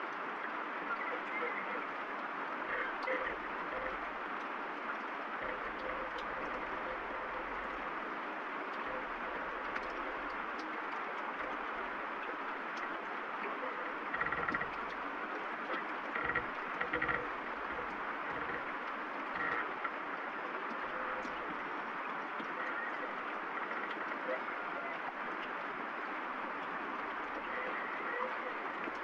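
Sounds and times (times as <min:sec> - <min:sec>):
rain falling: 0:00.0 - 0:29.0
soft creaks: 0:13.6 - 0:15.1, 0:15.7 - 0:20.0.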